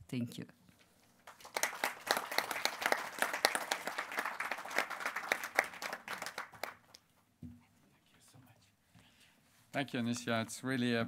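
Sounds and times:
audience applauding: 0:01.2 - 0:07.0.

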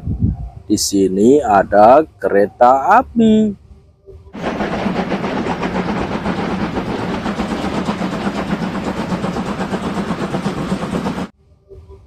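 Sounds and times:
rush of steam: 0:04.4 - 0:11.3
steam locomotive exhaust chuffs: 0:04.4 - 0:11.3.

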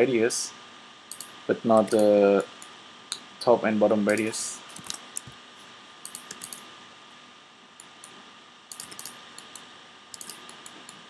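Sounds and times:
keyboard keys clicking: 0:10.2 - 0:11.0.

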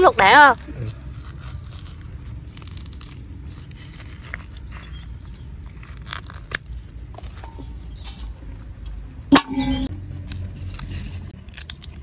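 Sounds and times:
root peel tearing by hand: 0:00.6 - 0:07.5, 0:10.1 - 0:12.0
peel cracking: 0:00.6 - 0:07.6, 0:10.1 - 0:12.0.

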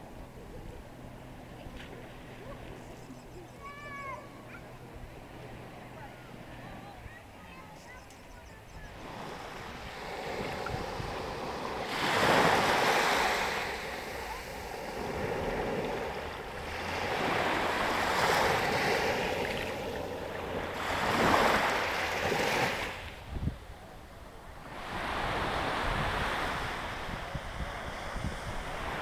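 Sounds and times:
small waves washing on shore: 0:00.7 - 0:29.0
wind rumble on microphone: 0:08.4 - 0:29.0.

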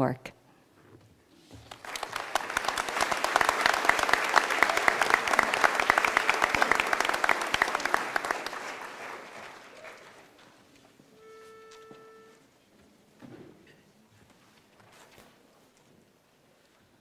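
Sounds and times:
audience applauding: 0:01.5 - 0:10.6.

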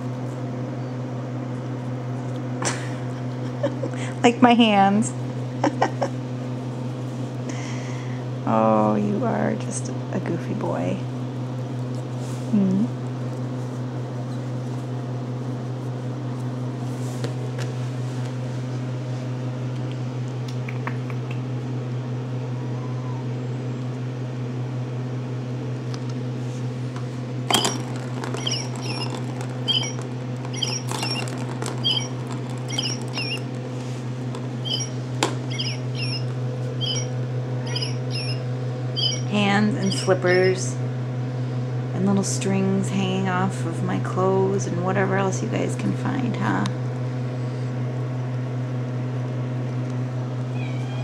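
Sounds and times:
kittens chirping: 0:22.5 - 0:23.3, 0:27.5 - 0:33.7, 0:34.4 - 0:40.6, 0:50.5 - 0:51.0.

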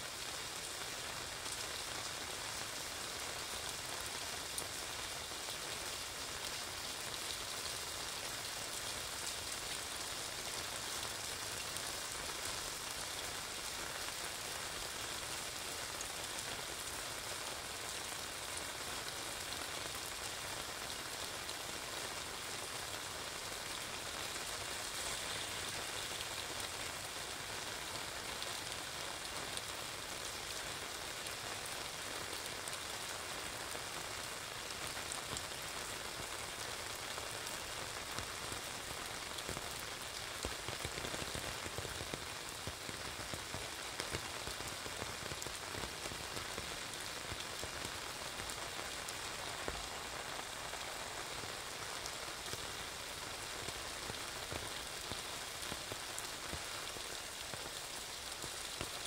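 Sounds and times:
rain on an umbrella: 0:00.0 - 0:59.0.

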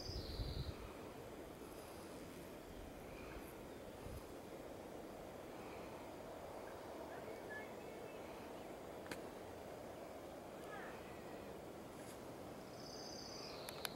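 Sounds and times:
low steady hiss: 0:00.0 - 0:13.9
distant bird chirps: 0:12.6 - 0:13.9.

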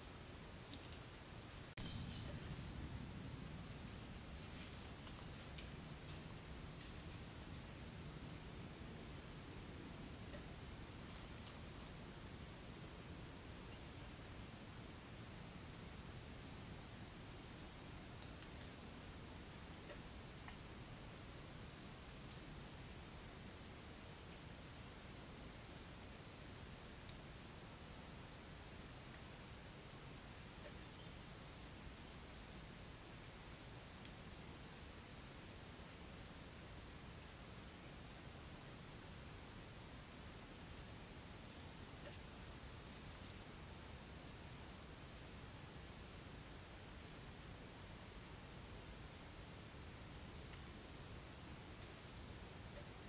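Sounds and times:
outdoor background hum: 0:00.0 - 0:53.0
bird chirping: 0:01.8 - 0:04.8, 0:08.8 - 0:19.6, 0:27.0 - 0:27.5, 0:28.7 - 0:31.2, 0:41.3 - 0:41.7, 0:44.3 - 0:45.0, 0:51.4 - 0:51.8.

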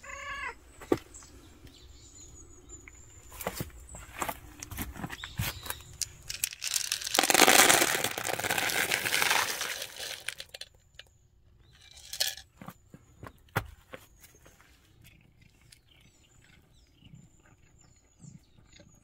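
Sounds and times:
bag of cat food rustling: 0:06.3 - 0:10.6
kibble poured into metal tray: 0:06.3 - 0:10.6, 0:11.9 - 0:12.4.

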